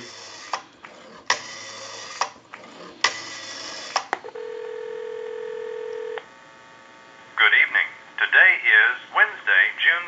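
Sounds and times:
rotary dial spinning back: 0:00.0 - 0:04.2
telephone ringback tone: 0:04.2 - 0:06.2.

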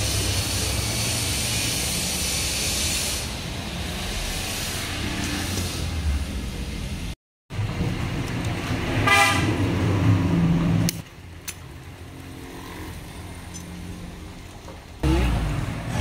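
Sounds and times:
road traffic: 0:00.0 - 0:16.0
vehicle horn: 0:09.0 - 0:09.6.

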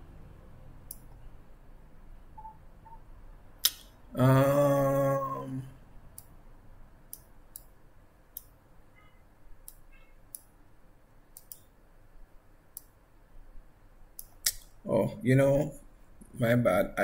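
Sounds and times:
computer mouse clicking: 0:00.9 - 0:01.2, 0:07.1 - 0:08.6, 0:09.6 - 0:10.5, 0:11.3 - 0:11.7, 0:14.2 - 0:14.7.

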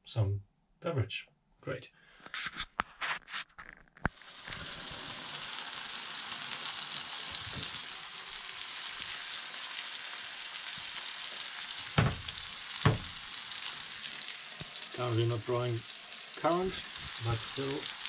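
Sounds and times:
steaks sizzling on a grill: 0:04.1 - 0:18.0
short knock: 0:12.0 - 0:13.2.

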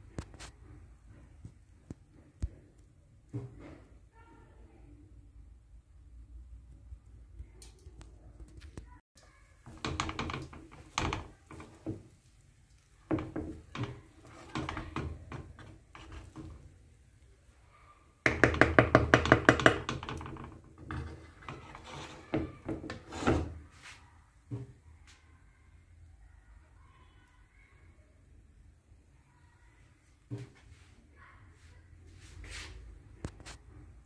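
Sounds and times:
utensil scraping a pan: 0:09.6 - 0:16.8, 0:18.4 - 0:24.0.

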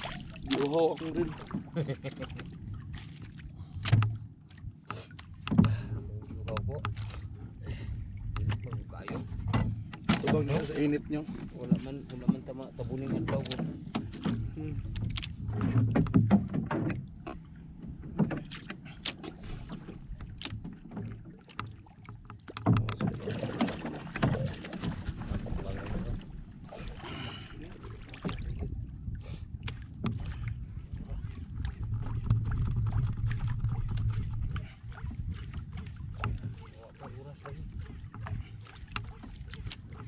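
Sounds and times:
clicks and knocks from boat: 0:00.0 - 0:07.5, 0:08.2 - 0:40.0
water lapping against canoe: 0:00.0 - 0:40.0
low rumble: 0:25.0 - 0:36.6.

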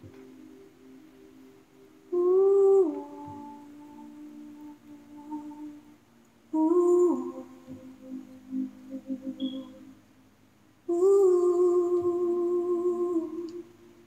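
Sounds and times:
woman humming: 0:02.1 - 0:05.9, 0:06.6 - 0:09.9, 0:10.9 - 0:13.7.

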